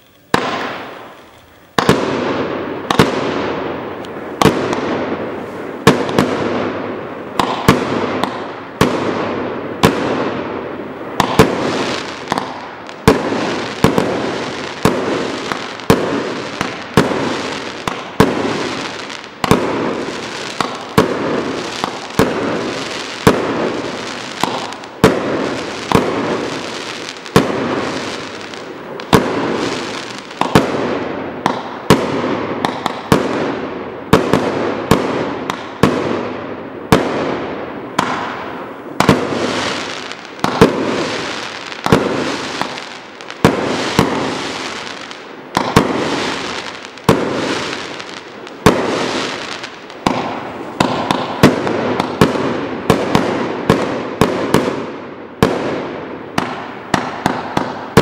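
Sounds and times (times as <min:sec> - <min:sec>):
firework barrage bangs: 0:00.0 - 0:58.0.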